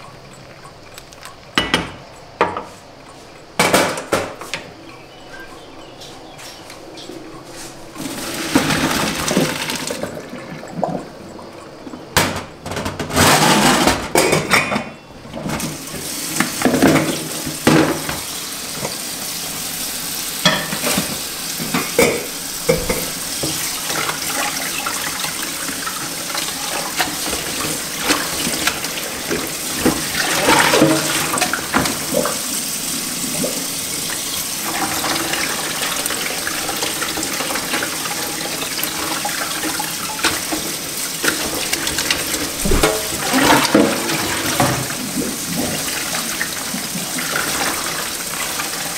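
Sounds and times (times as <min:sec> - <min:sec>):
colander knocking: 0:03.6 - 0:04.5, 0:39.7 - 0:45.0
tap water running: 0:07.0 - 0:12.6, 0:15.3 - 0:48.9
water and pasta poured splashing: 0:08.0 - 0:11.0, 0:23.4 - 0:48.9.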